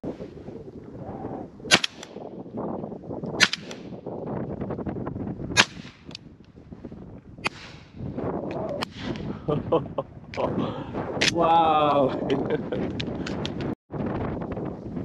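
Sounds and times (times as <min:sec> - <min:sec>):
wind buffeting microphone: 0:00.0 - 0:15.0
shotgun shots: 0:01.7 - 0:02.2, 0:03.4 - 0:04.0, 0:05.6 - 0:06.1, 0:07.4 - 0:08.0.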